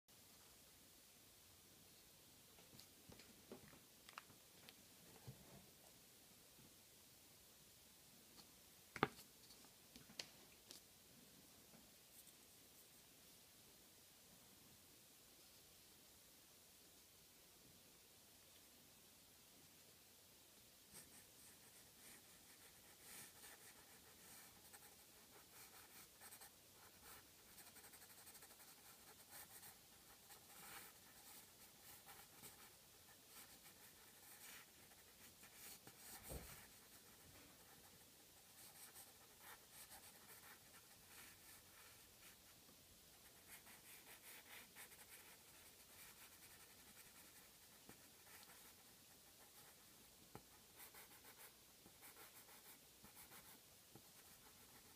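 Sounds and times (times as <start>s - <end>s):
pencil scratching on paper: 21.0s - 42.4s, 43.2s - 54.9s.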